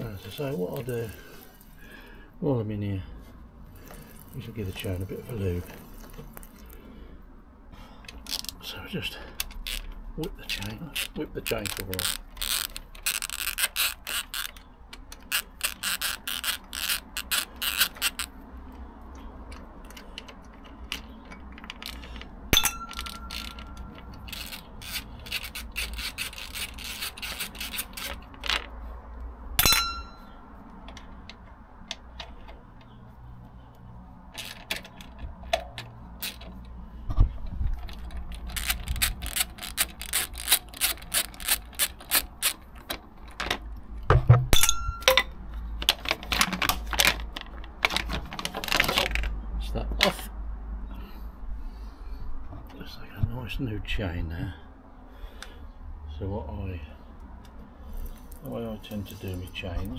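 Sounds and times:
socket ratchet clicking: 0:09.4 - 0:18.4, 0:19.8 - 0:28.7, 0:37.8 - 0:43.4
sharp metal clinks: 0:22.6 - 0:24.2, 0:29.6 - 0:30.4, 0:44.6 - 0:45.3.

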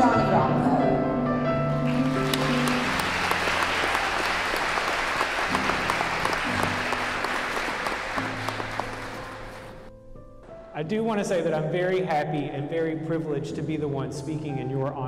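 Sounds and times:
soft background music: 0:00.0 - 0:15.0
crowd applauding: 0:01.7 - 0:09.9.

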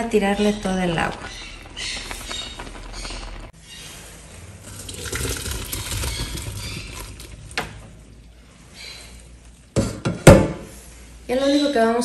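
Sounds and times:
water splashing into a colander: 0:04.7 - 0:07.6.

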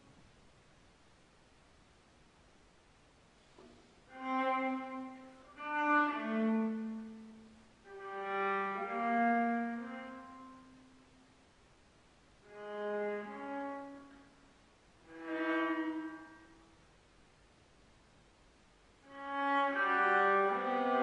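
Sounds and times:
solo viola bowed: 0:04.1 - 0:11.2, 0:12.4 - 0:16.8, 0:19.0 - 0:21.0.

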